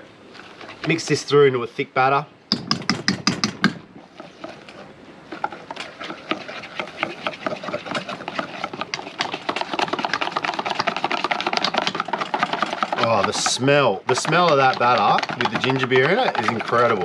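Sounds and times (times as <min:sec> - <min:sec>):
whisk beating in metal bowl: 0:05.3 - 0:17.0.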